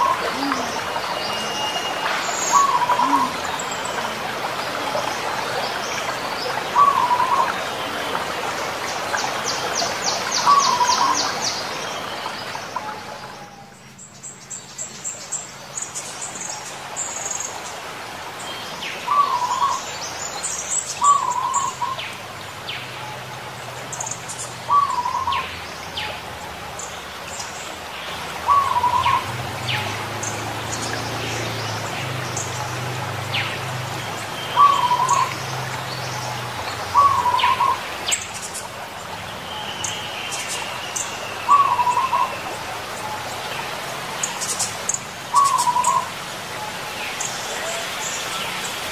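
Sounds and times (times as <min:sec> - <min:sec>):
doves cooing: 0:00.0 - 0:05.8, 0:06.6 - 0:08.2, 0:10.4 - 0:11.4, 0:24.7 - 0:25.5, 0:28.4 - 0:30.6, 0:34.2 - 0:37.8, 0:41.5 - 0:42.5, 0:45.3 - 0:46.9
small birds chirping and trilling: 0:00.0 - 0:17.8, 0:18.4 - 0:48.9.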